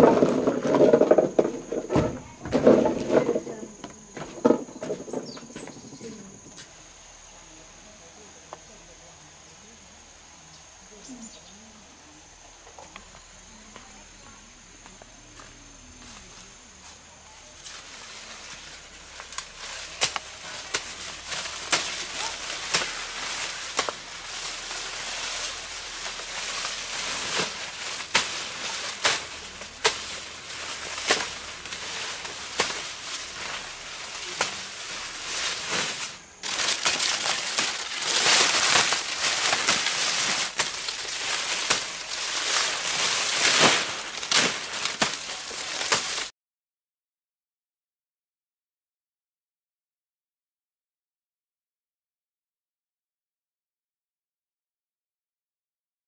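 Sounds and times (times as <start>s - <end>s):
dry corn stalks rustling: 0.0s - 6.8s, 12.6s - 46.3s
stalks snapping: 19.2s - 34.8s, 35.5s - 46.3s.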